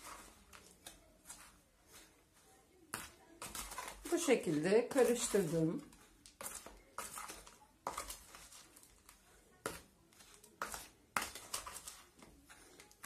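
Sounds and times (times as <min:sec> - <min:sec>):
powder scraping in plastic container: 0:02.9 - 0:09.1, 0:09.7 - 0:13.0.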